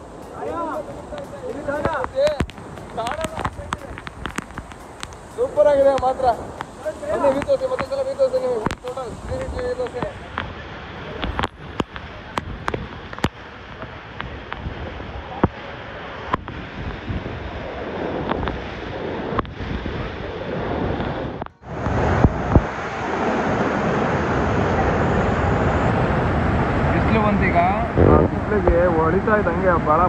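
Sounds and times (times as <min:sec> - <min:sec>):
sharp ticks: 0:00.0 - 0:10.1
waterfall rushing: 0:00.0 - 0:30.0.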